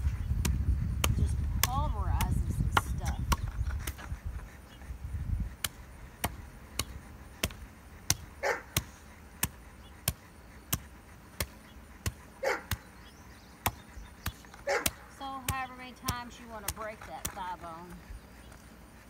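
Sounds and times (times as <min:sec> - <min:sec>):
dog yipping: 0:08.4 - 0:08.8, 0:12.4 - 0:12.8, 0:14.6 - 0:15.0.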